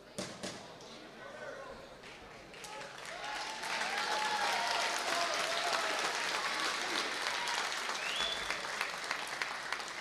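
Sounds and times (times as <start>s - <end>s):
crowd applauding and cheering: 2.5s - 10.0s.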